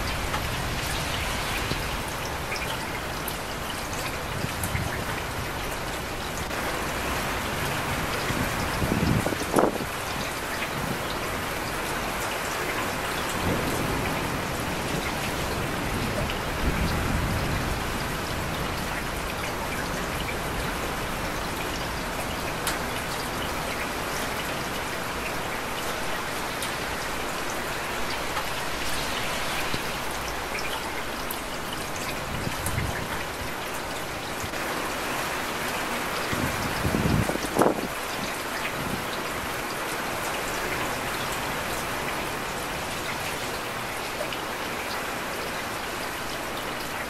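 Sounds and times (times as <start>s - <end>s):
steady rain falling: 0.0s - 47.0s.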